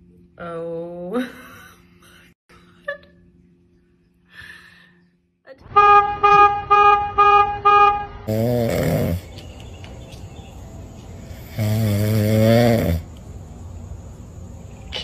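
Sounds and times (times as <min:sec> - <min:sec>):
vehicle horn tooting: 0:05.6 - 0:08.3
cat snoring: 0:08.3 - 0:09.2, 0:11.4 - 0:13.0.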